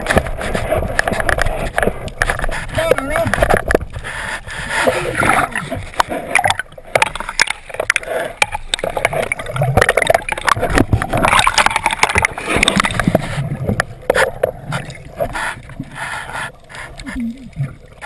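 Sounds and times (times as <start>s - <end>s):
seawater sloshing and splashing: 0.0s - 18.0s
bubbles popping: 8.8s - 13.1s.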